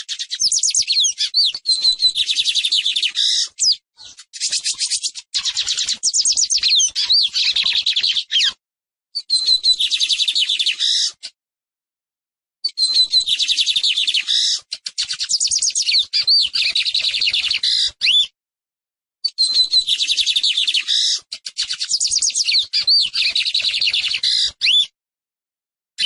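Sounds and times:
bird singing buzzy trills: 0.0 - 8.6, 15.2 - 18.2.

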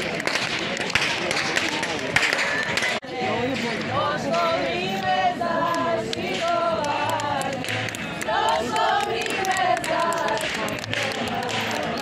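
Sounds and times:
women singing a folk song: 3.1 - 12.0.

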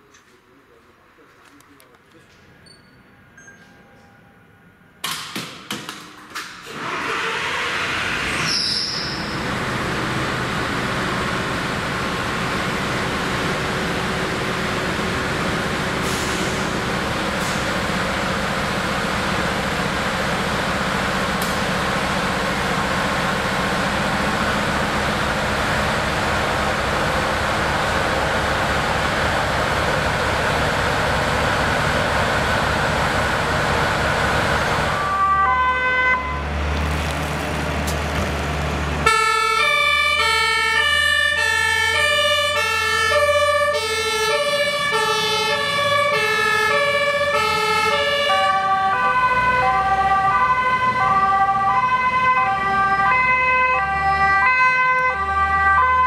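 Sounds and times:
truck engine moving: 6.4 - 56.0
diesel engine idling: 9.1 - 54.5
siren in stepped tones: 35.0 - 36.5, 39.0 - 56.0.

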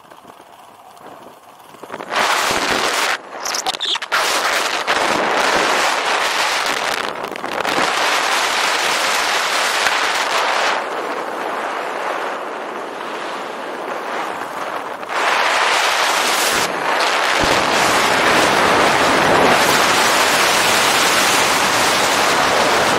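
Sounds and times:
wind rushing over microphone: 1.2 - 22.9.

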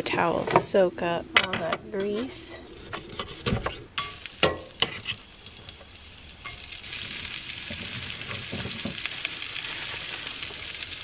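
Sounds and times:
onion sizzling in grease: 2.7 - 11.0.

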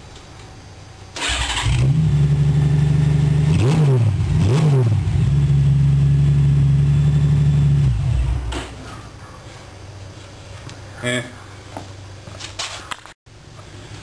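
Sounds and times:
motorcycle engine revving and idling: 1.2 - 8.8.

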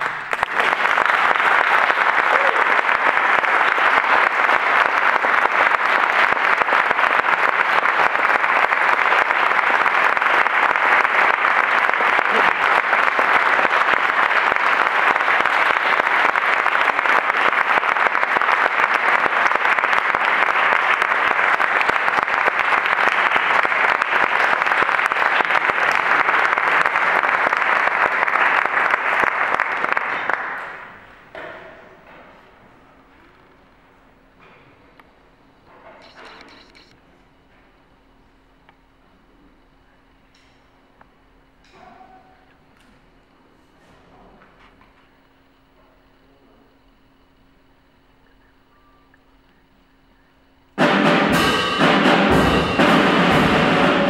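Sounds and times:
audience applauding: 0.0 - 31.3, 52.0 - 54.0.

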